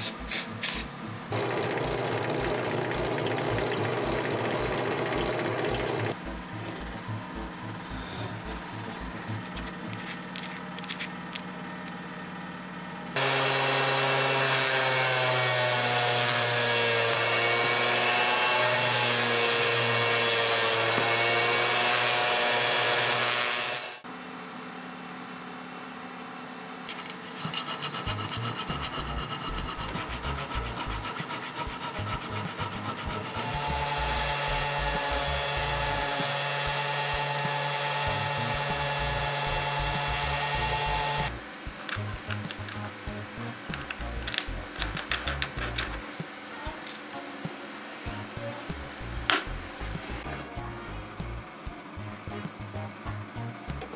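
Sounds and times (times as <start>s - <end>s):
rotary tool grinding metal: 0.0s - 7.1s, 26.9s - 46.1s
file rubbing in metal threads: 0.0s - 10.9s, 26.9s - 36.5s.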